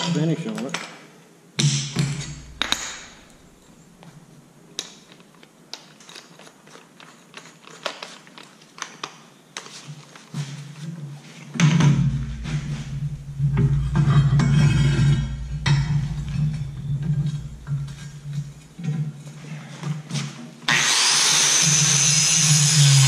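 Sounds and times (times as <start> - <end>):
low hum: 1.7 - 4.0, 11.7 - 19.0.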